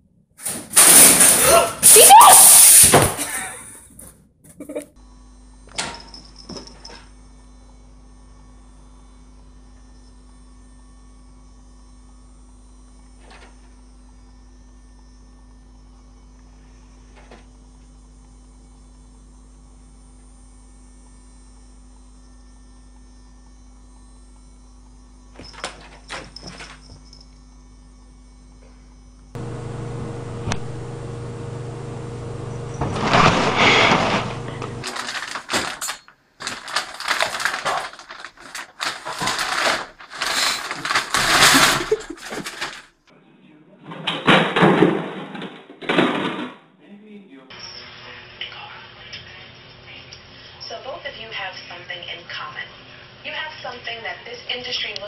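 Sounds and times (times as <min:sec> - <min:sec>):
low electrical hum: 0:27.1 - 0:43.6
deep hum: 0:29.4 - 0:34.9.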